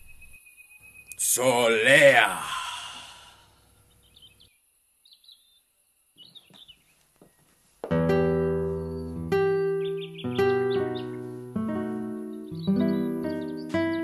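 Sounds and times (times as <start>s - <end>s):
faint bird chirps: 0.0s - 2.0s, 2.6s - 7.5s, 8.7s - 14.0s
keyboard chord: 7.9s - 14.0s.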